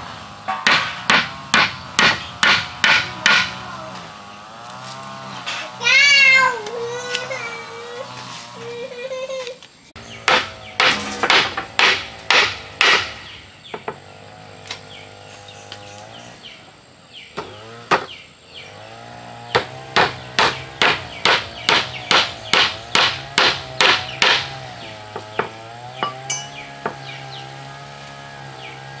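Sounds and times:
hammer striking wood: 0.0 - 3.6, 10.2 - 14.1, 17.4 - 18.2, 19.5 - 27.2.

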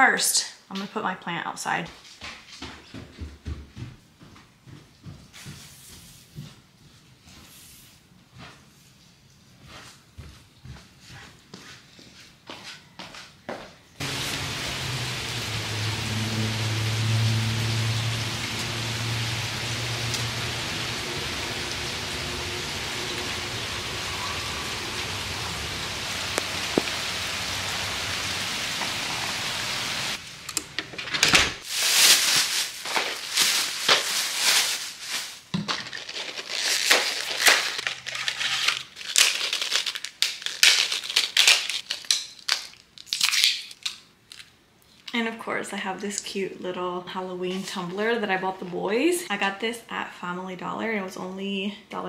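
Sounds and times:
steady rain: 14.0 - 30.5
cardboard box crackling: 35.7 - 41.9.

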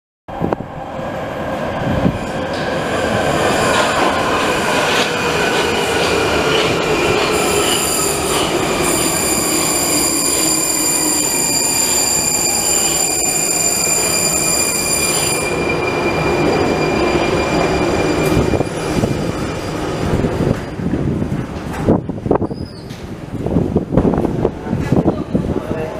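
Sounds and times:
train wheels rumbling: 0.3 - 25.9
train motor whine: 6.6 - 19.8
high brake squeal: 7.3 - 20.0.

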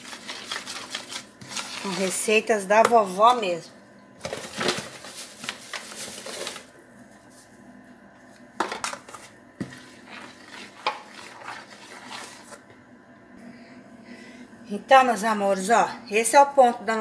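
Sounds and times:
spoon scraping a plastic bowl: 0.0 - 2.5, 8.8 - 12.6.

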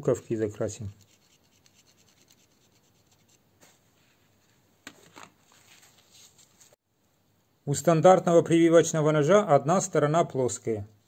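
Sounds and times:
marker scratching on plastic: 0.9 - 3.4.

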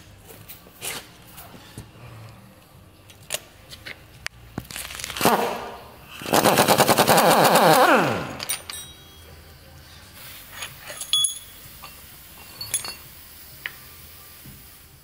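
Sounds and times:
pneumatic impact wrench hammering: 6.2 - 9.0.

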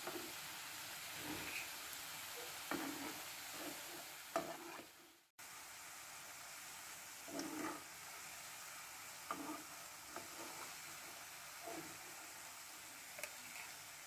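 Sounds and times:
fritters sizzling in hot oil: 0.0 - 14.0.

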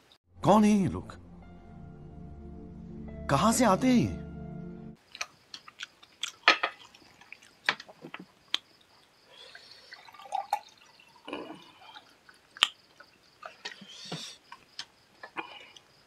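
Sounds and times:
person chewing with wet clicks: 5.0 - 8.7, 10.5 - 13.9, 14.5 - 16.0.

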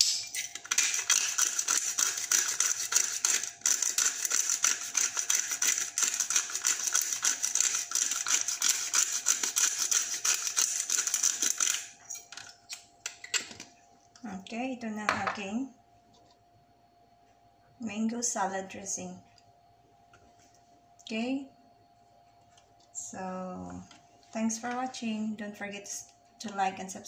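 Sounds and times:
pepper grinder crackling: 0.0 - 13.4.

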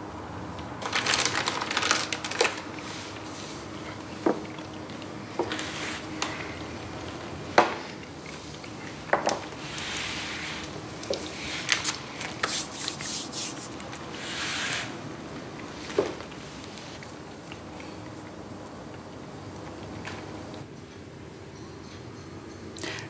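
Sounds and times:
soft rubbing sounds: 5.5 - 6.1, 9.6 - 14.9.

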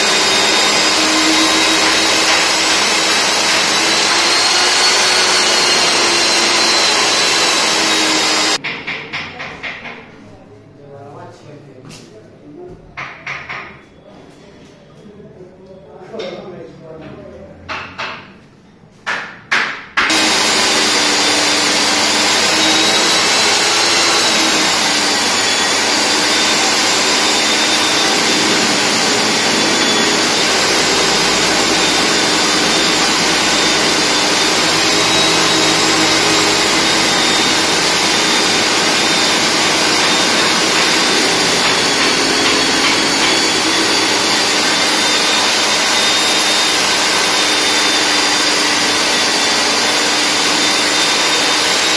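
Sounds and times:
core drill cutting concrete: 0.0 - 8.6, 20.0 - 51.9.

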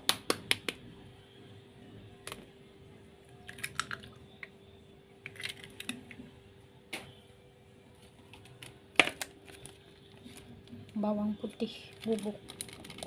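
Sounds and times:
egg cracking against a bowl: 3.4 - 4.5, 5.2 - 6.2, 8.4 - 9.6.

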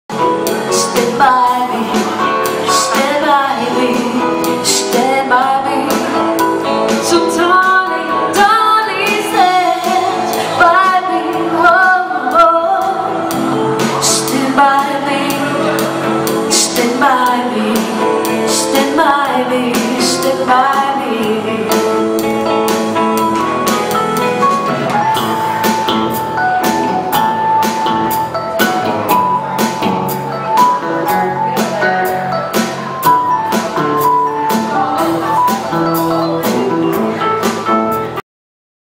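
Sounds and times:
live band playing: 0.1 - 38.2
woman singing: 0.4 - 22.3, 34.5 - 36.6.

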